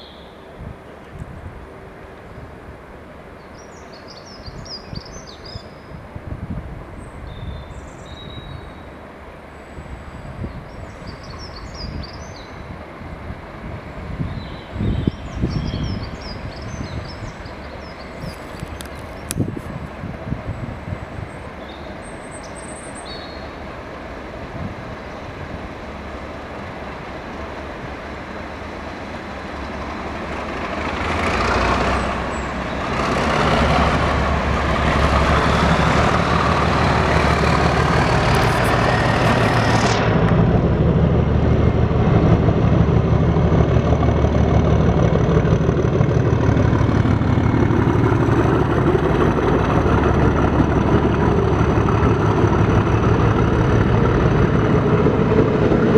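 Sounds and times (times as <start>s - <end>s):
diesel locomotive engine passing: 0.0s - 55.9s
train wheels rolling on rails: 23.3s - 55.9s.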